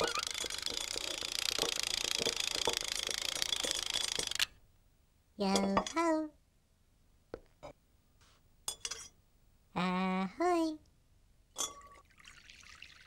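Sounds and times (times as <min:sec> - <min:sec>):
wind-up beater whirring: 0:00.0 - 0:04.4.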